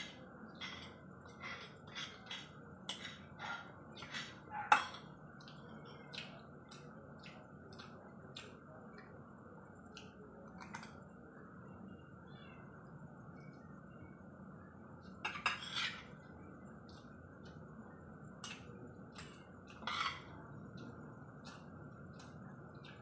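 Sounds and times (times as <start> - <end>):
cutlery clicking on a plate: 18.4 - 20.3.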